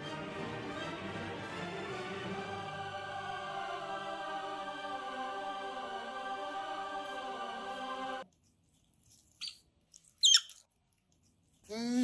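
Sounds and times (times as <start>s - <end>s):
otters squeaking: 9.3s - 10.7s.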